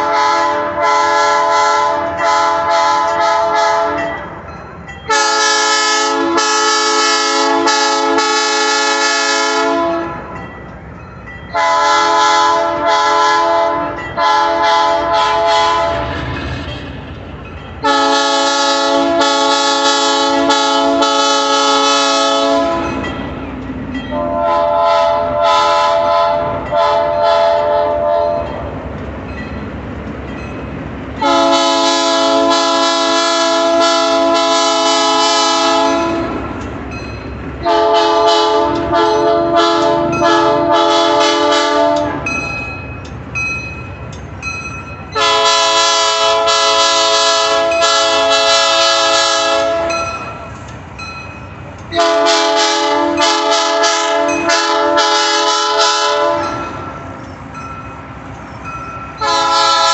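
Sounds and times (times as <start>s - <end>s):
locomotive air horn blasts: 0.0s - 4.2s, 5.1s - 10.4s, 11.6s - 16.1s, 17.8s - 23.0s, 24.1s - 28.5s, 31.2s - 36.4s, 37.6s - 42.3s, 45.2s - 50.1s, 51.9s - 56.9s, 59.2s - 59.9s
train rumbling past: 0.0s - 59.9s.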